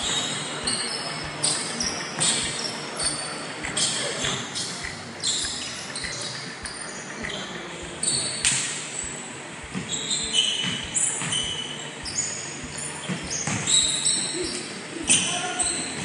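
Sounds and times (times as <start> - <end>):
sneaker squeaks: 0.0 - 16.0
basketball bouncing: 10.6 - 11.6, 13.0 - 14.0.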